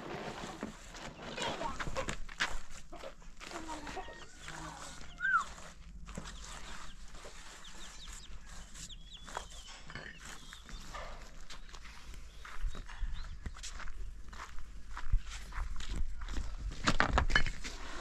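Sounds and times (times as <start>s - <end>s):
bird chirps: 3.8s - 14.0s.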